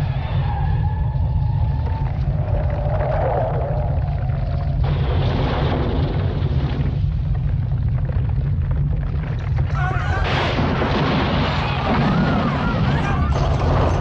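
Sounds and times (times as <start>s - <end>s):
people screaming: 0.0s - 4.2s, 9.7s - 10.5s, 11.4s - 14.0s
deep rumble: 0.0s - 14.0s
crashing clattering debris: 4.8s - 14.0s.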